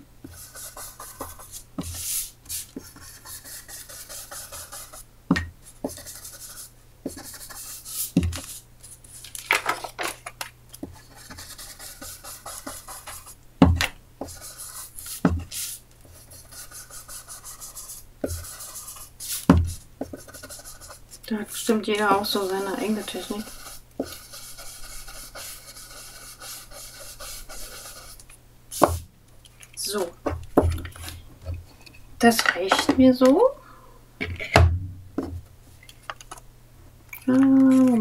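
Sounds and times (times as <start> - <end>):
foam pad rubbing on paper: 21.6 - 28.2.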